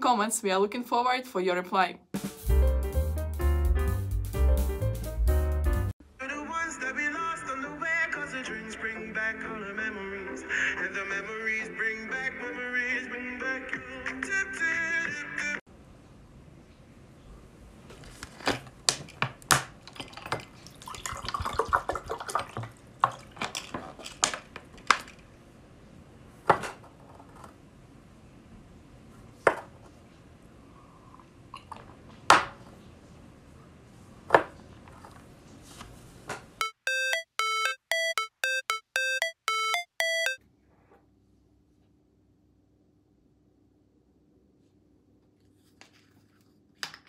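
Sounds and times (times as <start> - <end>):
water poured into a glass: 19.8 - 23.4
short bright pitched melody: 36.6 - 40.4.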